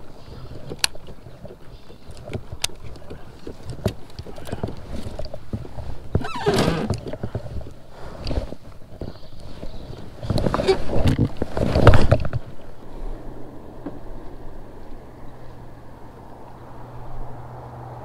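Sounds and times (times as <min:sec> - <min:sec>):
gear and clothing clattering: 0:00.0 - 0:12.6.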